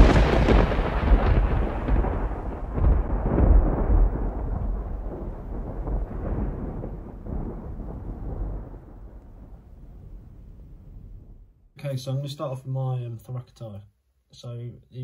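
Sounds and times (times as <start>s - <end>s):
deep rolling thunder: 0.0s - 11.7s.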